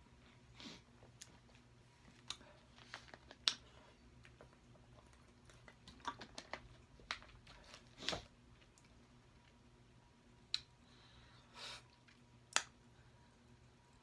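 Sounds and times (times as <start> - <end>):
close-miked eating: 0.1 - 9.8.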